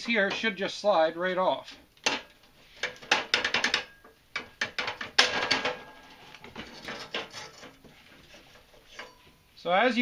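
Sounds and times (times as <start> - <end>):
metal bracket clicking and scraping: 1.7 - 9.4.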